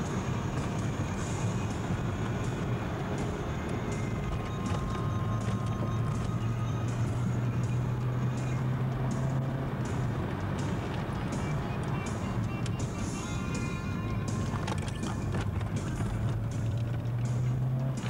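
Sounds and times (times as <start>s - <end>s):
car engine hum: 0.0s - 18.0s
road and wind noise: 0.0s - 18.0s.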